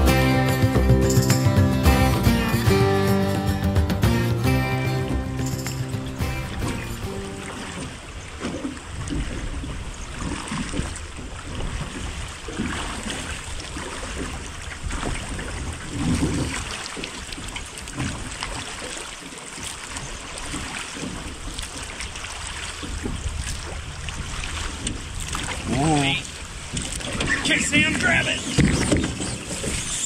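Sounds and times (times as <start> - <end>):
water splashing around boat: 4.0 - 30.0
wind rumble on microphone: 7.4 - 18.8, 20.0 - 30.0.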